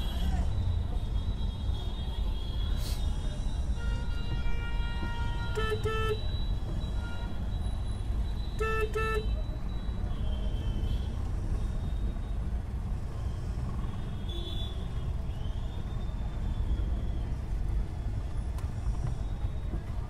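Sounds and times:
car road and engine rumble: 11.0s - 20.0s.

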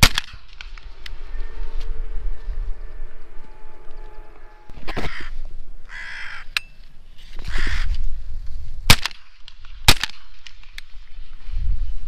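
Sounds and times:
shotgun shots: 0.0s - 0.7s, 8.9s - 10.8s
crows cawing: 3.8s - 6.6s, 7.4s - 8.0s.

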